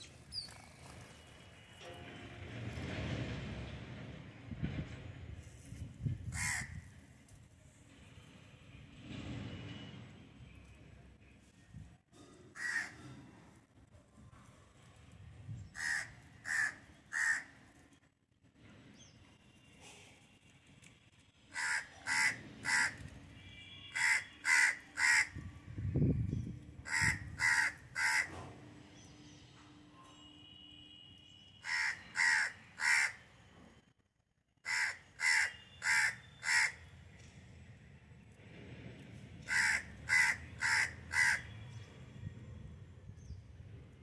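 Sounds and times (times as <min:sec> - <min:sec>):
crow cawing: 0:06.4 - 0:06.8, 0:12.6 - 0:13.0, 0:15.8 - 0:17.6, 0:21.5 - 0:23.0, 0:23.9 - 0:25.4, 0:26.9 - 0:28.4, 0:31.6 - 0:33.2, 0:34.6 - 0:36.8, 0:39.5 - 0:41.5.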